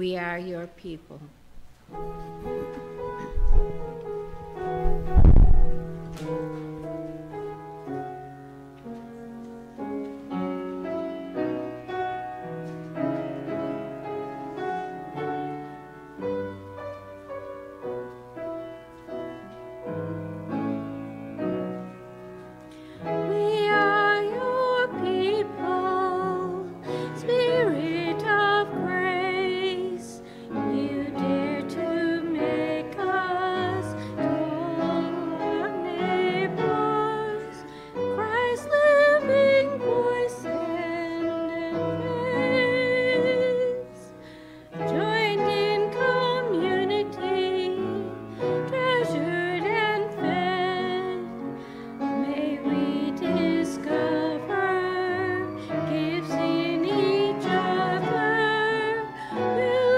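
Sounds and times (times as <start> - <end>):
keyboard playing hymn chords: 1.8 - 59.9
woman singing with vibrato: 23.2 - 44.1, 44.8 - 51.5, 52.1 - 59.9.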